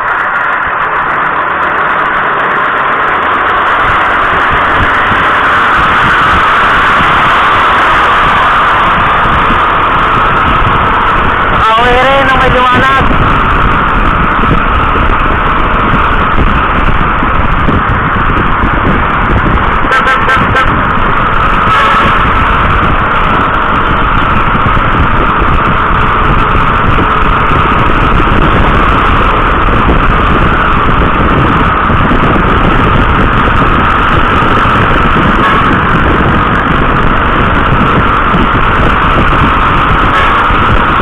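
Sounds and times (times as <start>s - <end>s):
vehicle engine and road rumble: 0.0s - 41.0s.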